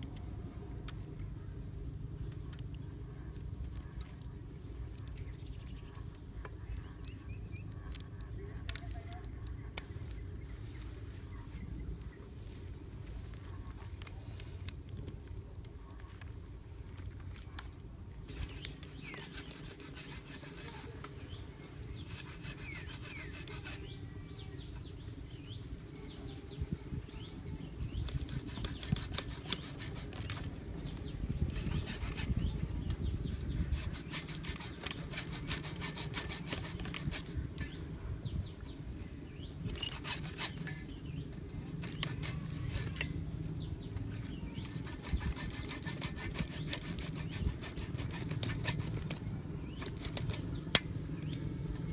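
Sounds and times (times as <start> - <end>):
hacksaw cutting plastic pipe: 22.0 - 23.8, 28.0 - 30.5, 33.6 - 37.7, 39.7 - 40.9, 41.8 - 43.1, 44.2 - 49.2, 49.8 - 50.9.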